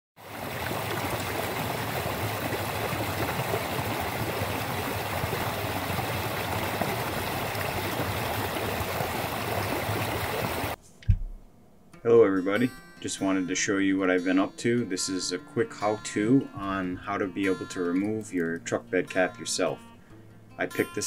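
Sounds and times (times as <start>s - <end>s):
stream running over rocks: 0.2s - 10.8s.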